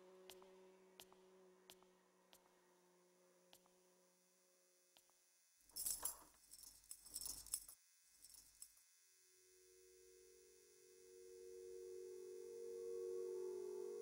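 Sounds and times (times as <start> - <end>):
metal keys jangling: 5.7 - 8.8.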